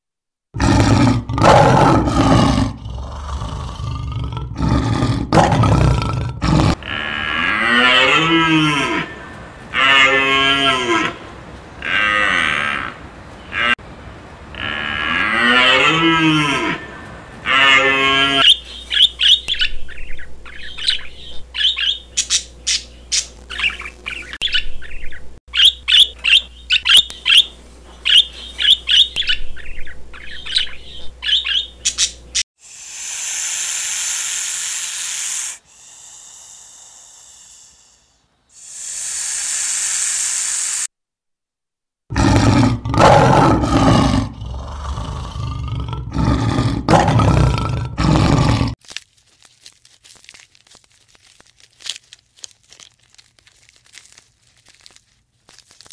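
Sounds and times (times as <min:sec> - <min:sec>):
lion roaring: 0:00.6 - 0:09.2, 0:42.1 - 0:48.8
hiss-like rushing noises: 0:32.6 - 0:40.9.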